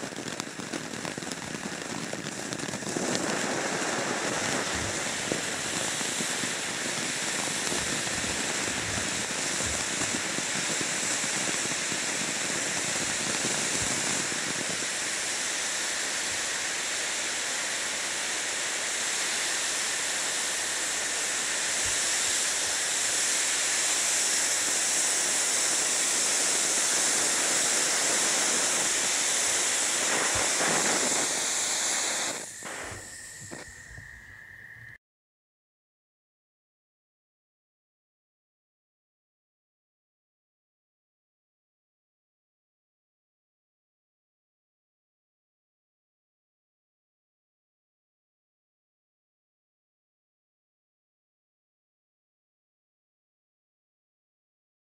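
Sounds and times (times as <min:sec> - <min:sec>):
firework crackles: 0:00.0 - 0:34.5
firework fountain hissing: 0:00.0 - 0:35.0.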